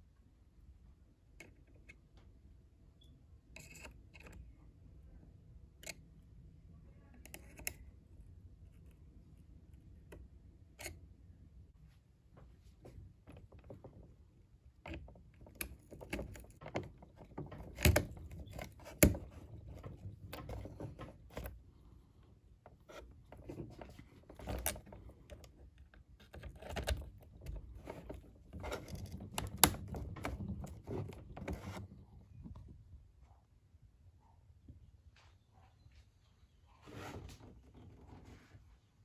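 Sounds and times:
plastic and metal parts clicking: 7.2 - 7.9, 14.7 - 21.6, 22.6 - 31.9.

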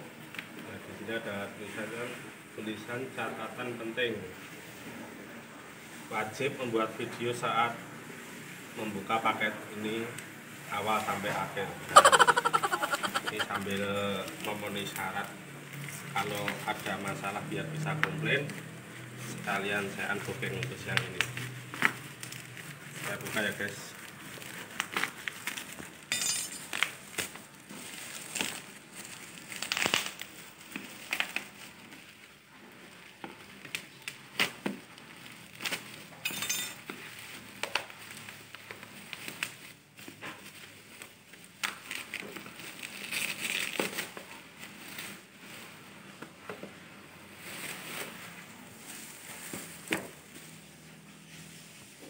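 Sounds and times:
plastic and bubble wrap crinkling: 12.0 - 52.0
knife cutting plastic wrapping: 24.2 - 31.9, 33.5 - 36.0, 36.8 - 45.2.

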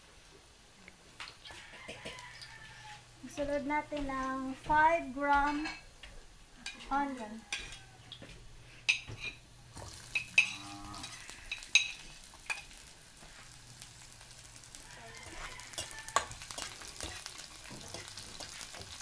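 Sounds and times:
onions sizzling in oil: 1.2 - 19.0
metal spoon clinking on plate: 10.1 - 12.7
spatula stirring: 15.1 - 19.0.

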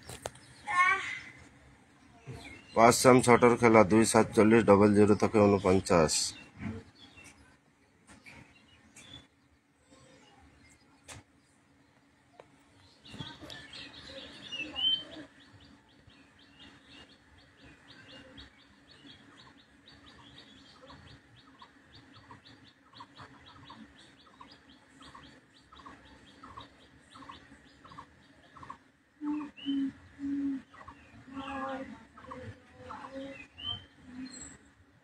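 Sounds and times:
small bird chirping: 8.1 - 34.9.

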